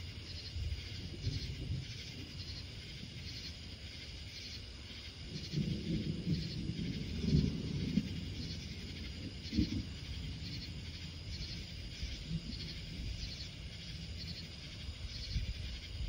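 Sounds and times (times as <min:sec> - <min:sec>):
distant thunder rumble: 0:00.0 - 0:16.0
night insects chirping: 0:00.0 - 0:16.0.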